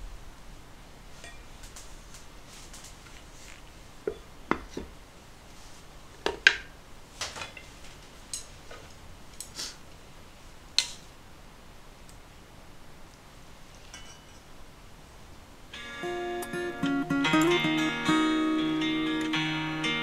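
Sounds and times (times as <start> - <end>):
chopsticks against metal bowls: 8.3 - 8.5.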